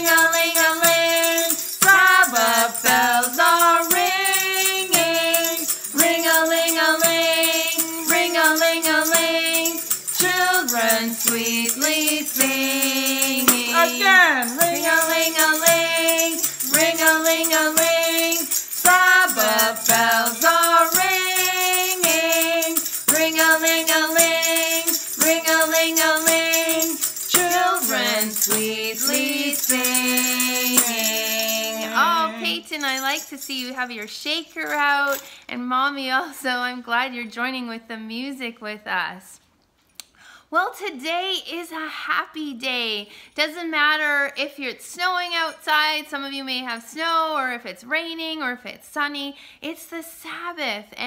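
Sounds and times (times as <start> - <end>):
voices singing: 0.0 - 32.8
hand bells ringing: 0.0 - 33.9
tambourine jingling: 0.0 - 35.5.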